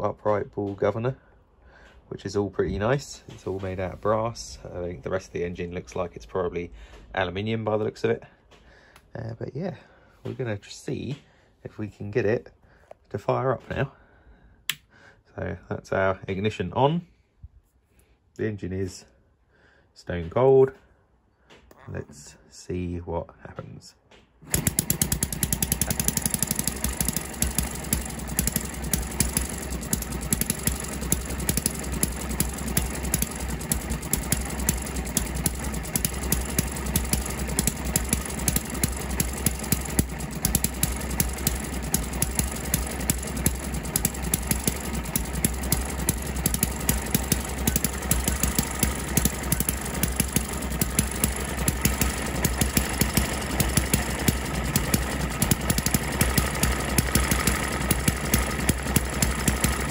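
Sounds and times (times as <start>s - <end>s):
small engine clattering: 3.2s - 4.6s, 24.4s - 59.9s.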